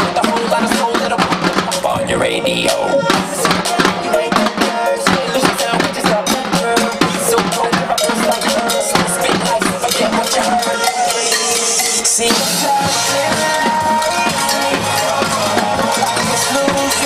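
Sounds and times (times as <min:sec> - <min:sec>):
drumline playing: 0:00.0 - 0:17.0
pitched music: 0:00.2 - 0:17.0
cymbal-like hiss: 0:11.1 - 0:12.2.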